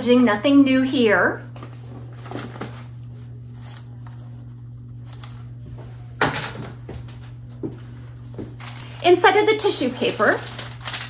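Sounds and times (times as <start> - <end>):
low electrical hum: 0.0 - 11.0
cardboard rustle: 9.8 - 11.0.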